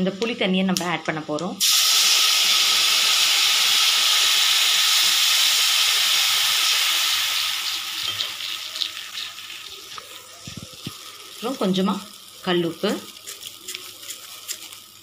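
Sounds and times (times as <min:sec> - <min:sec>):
oil sizzling and bubbling: 0:01.1 - 0:15.0
oil popping: 0:07.7 - 0:11.8.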